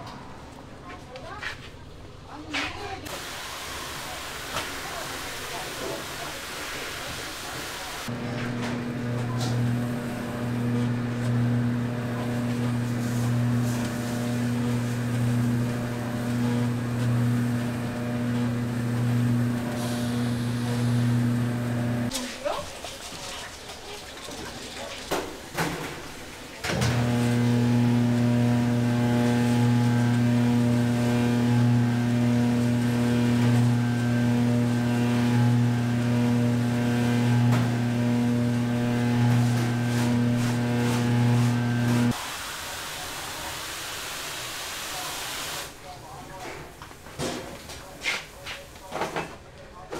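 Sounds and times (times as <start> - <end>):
mixer motor humming: 3.1 - 22.1, 26.6 - 42.2.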